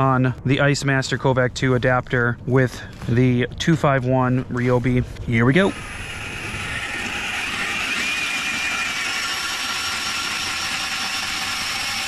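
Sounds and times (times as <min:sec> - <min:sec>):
drill motor whine: 0:05.5 - 0:12.0
auger cutting through ice: 0:05.6 - 0:12.0.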